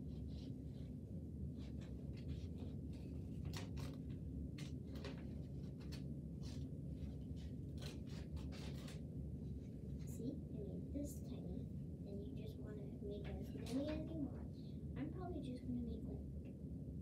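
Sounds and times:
paper handling: 0.0s - 10.0s
steady low hum: 0.0s - 17.0s
scissors snipping paper: 1.6s - 9.0s.

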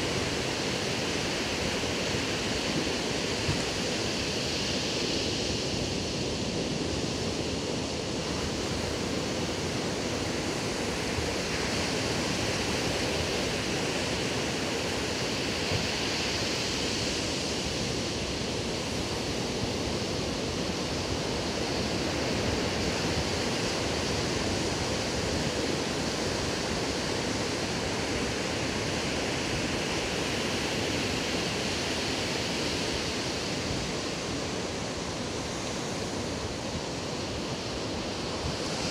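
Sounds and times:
ocean surf breaking on beach: 0.0s - 38.9s.

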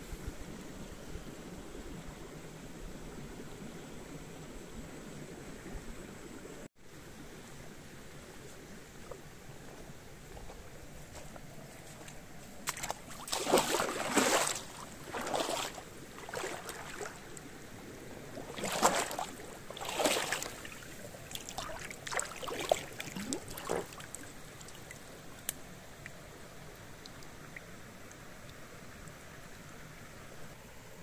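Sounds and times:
water splashing and sloshing: 8.4s - 30.3s.

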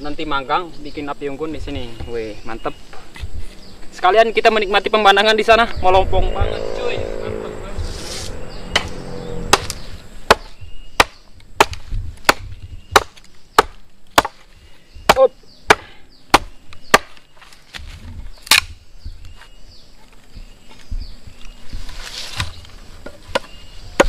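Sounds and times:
machete chopping wood: 9.5s - 14.5s, 15.1s - 18.8s.

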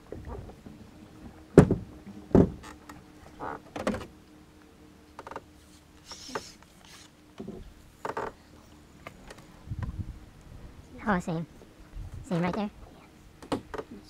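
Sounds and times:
faint steady hum: 0.0s - 14.0s
knocks against boat hull: 1.6s - 2.6s, 13.4s - 13.8s.

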